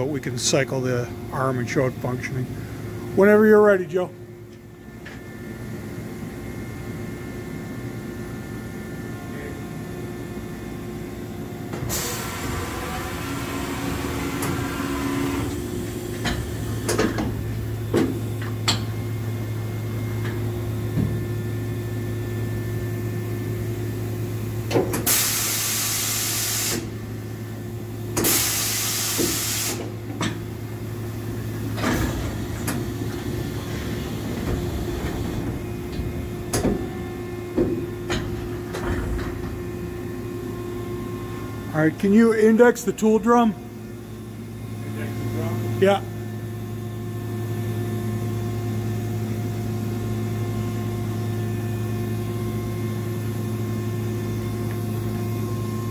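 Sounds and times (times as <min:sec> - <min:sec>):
air hiss bursts: 0:28.2 - 0:29.9
motor hum: 0:29.8 - 0:55.9.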